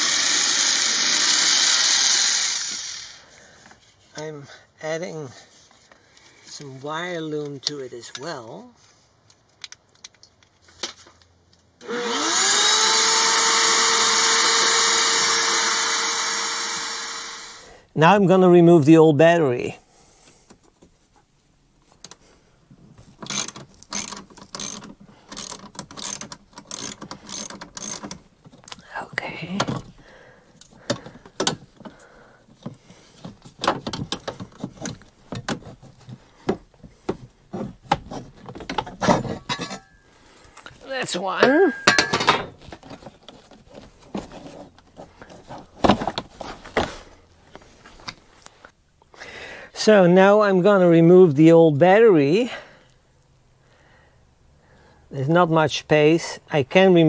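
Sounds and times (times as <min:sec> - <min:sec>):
shop vacuum motor running: 0:11.8 - 0:17.7.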